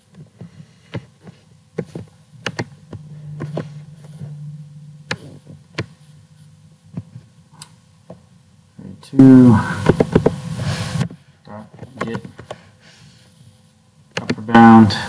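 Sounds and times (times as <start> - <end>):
low hum: 2.6 - 8.4.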